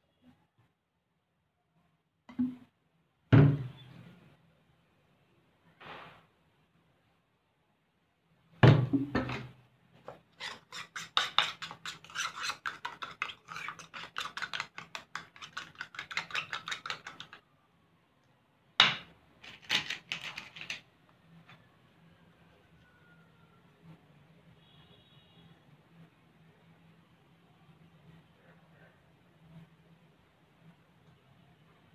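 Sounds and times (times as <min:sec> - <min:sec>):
thump: 0:03.3 - 0:03.7, 0:08.6 - 0:09.4.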